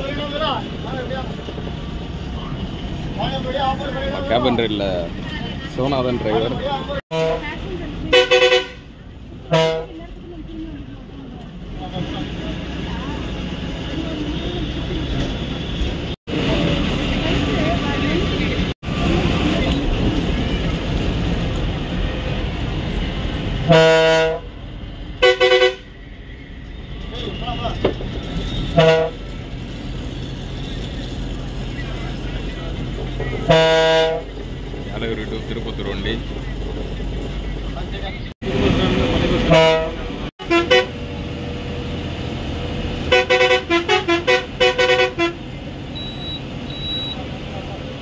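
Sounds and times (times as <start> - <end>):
bus engine and road noise: 0.0 - 48.0
long low horn blast: 7.1 - 10.0, 23.6 - 24.6, 25.2 - 25.9, 28.7 - 29.3, 33.4 - 34.3, 39.4 - 41.1, 43.1 - 45.4.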